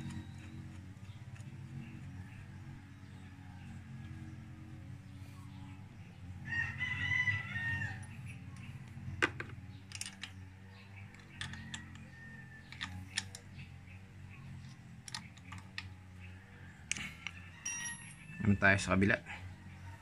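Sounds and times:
steady low hum: 0:00.0 - 0:20.0
rooster crowing: 0:06.4 - 0:08.2.

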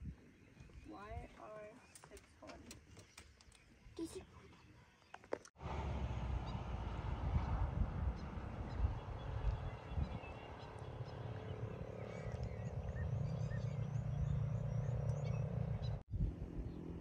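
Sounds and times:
small birds chirping: 0:00.0 - 0:05.5, 0:08.1 - 0:16.0
steady low rumble: 0:05.6 - 0:16.8.

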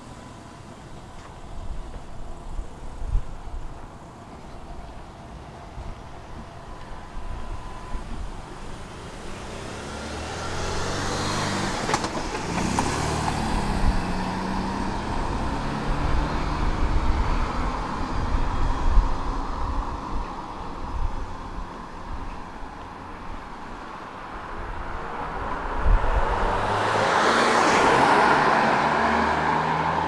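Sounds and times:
street traffic: 0:00.0 - 0:30.0
vehicle passing close by: 0:07.9 - 0:22.0, 0:24.2 - 0:30.0.

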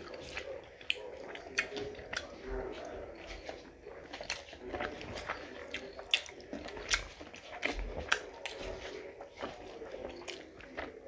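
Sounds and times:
lip smacks: 0:00.0 - 0:02.4, 0:03.4 - 0:08.6
wet chewing: 0:00.0 - 0:11.0.

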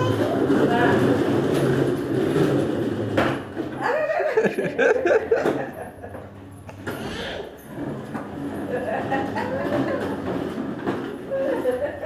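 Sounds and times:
plastic wheels rumbling on tiles: 0:00.0 - 0:12.0.

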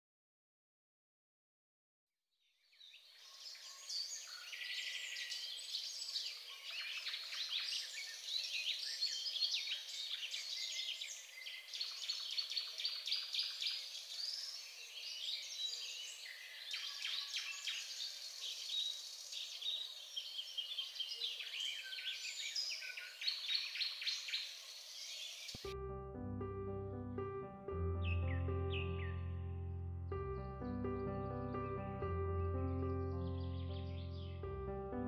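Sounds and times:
birds chirping chorus: 0:27.9 - 0:29.4, 0:30.1 - 0:35.0.

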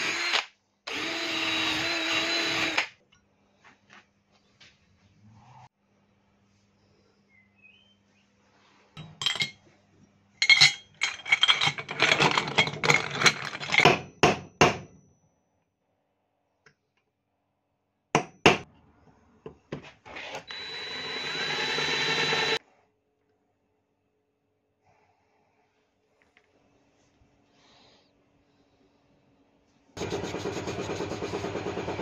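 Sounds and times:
cordless drill whining: 0:00.0 - 0:02.9, 0:20.4 - 0:22.6
metal knocking and clinking: 0:10.4 - 0:14.1.

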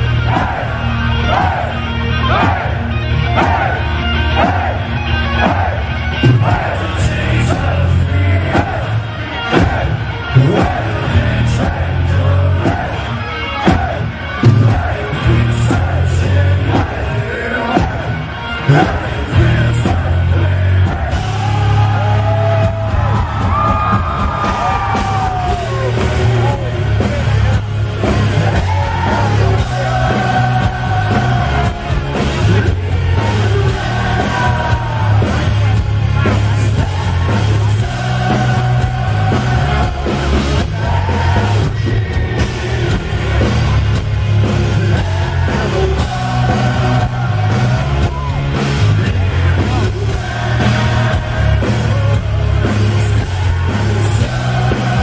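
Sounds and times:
singer shouting vocals: 0:00.0 - 0:43.5
heavy metal band playing: 0:00.0 - 0:55.0
pounding drum kit: 0:00.0 - 0:55.0.

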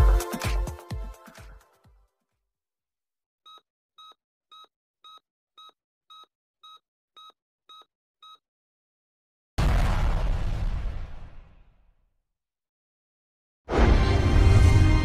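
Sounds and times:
short electronic beeps: 0:03.5 - 0:08.4.

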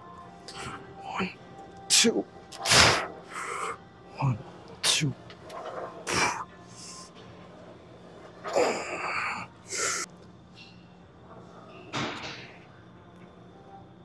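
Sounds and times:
forceful hissing exhales: 0:02.6 - 0:03.1.

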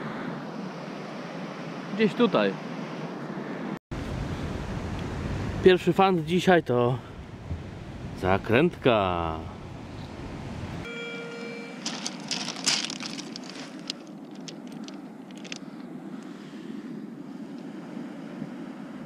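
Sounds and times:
metal detector tone: 0:10.9 - 0:12.2
pebbles clacking: 0:11.8 - 0:15.7.

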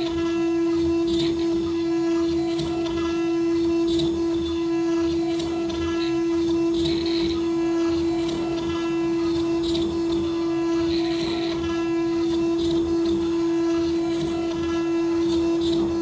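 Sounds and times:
router spindle whining: 0:00.0 - 0:16.0.

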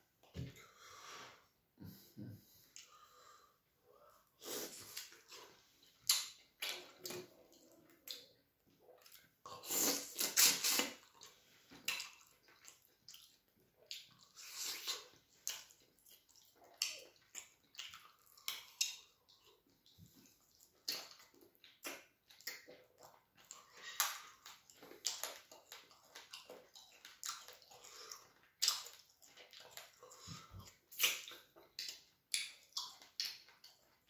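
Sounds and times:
person chewing wetly: 0:03.9 - 0:34.0
slurping: 0:09.0 - 0:19.0.

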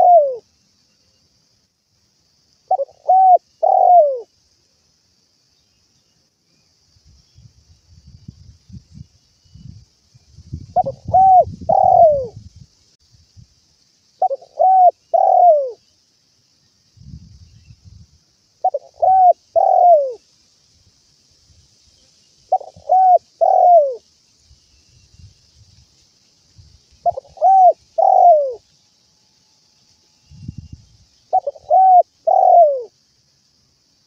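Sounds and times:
dove cooing: 0:00.0 - 0:00.4, 0:02.7 - 0:04.3, 0:10.8 - 0:12.4, 0:14.2 - 0:15.8, 0:18.6 - 0:20.2, 0:22.5 - 0:24.0, 0:27.0 - 0:28.6, 0:31.3 - 0:32.9.

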